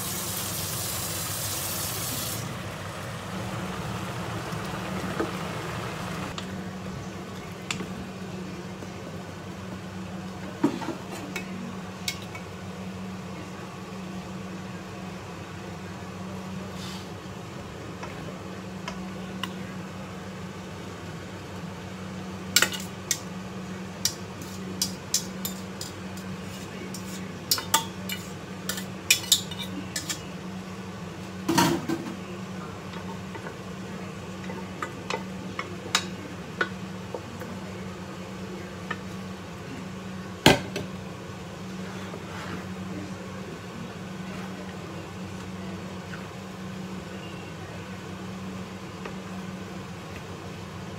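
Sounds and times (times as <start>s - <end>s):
metal utensils clanking on frying pan: 24.1s - 30.2s.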